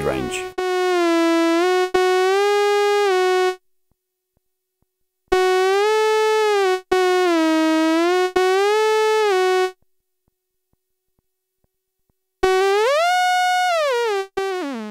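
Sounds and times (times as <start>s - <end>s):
buzzy synthesizer note bending in pitch: 0.0s - 3.6s, 5.3s - 9.8s, 12.4s - 14.9s.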